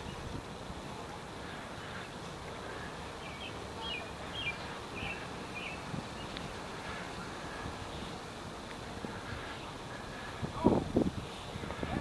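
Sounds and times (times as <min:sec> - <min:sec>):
outdoor background noise: 0:00.0 - 0:12.0
bird chirping: 0:01.9 - 0:08.2.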